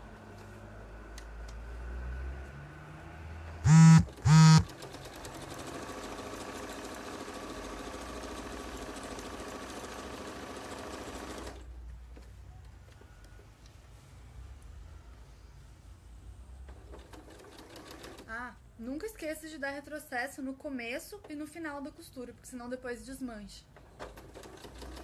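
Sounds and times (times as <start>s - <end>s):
short loud humming tones: 3.6s - 4.7s
sewing machine stitching: 3.7s - 11.7s, 16.7s - 18.4s, 23.8s - 25.0s.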